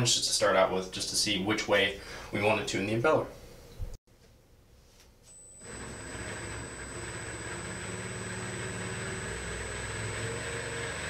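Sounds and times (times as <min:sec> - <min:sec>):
electric motor whining: 0:05.6 - 0:11.0.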